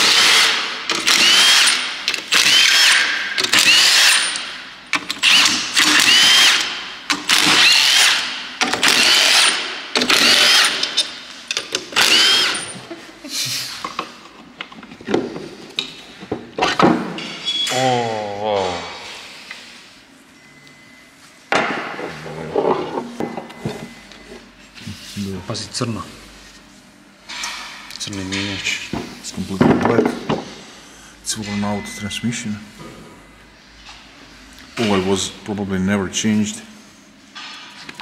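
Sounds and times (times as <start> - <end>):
impact driver spinning bolts: 0.0 - 11.2, 11.8 - 12.8.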